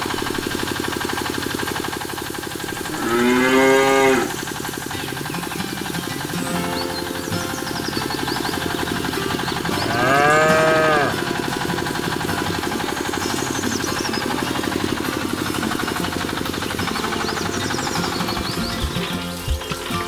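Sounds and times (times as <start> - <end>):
small electric pump motor buzzing: 0.0 - 19.7
cow mooing: 2.8 - 4.4, 9.8 - 11.3.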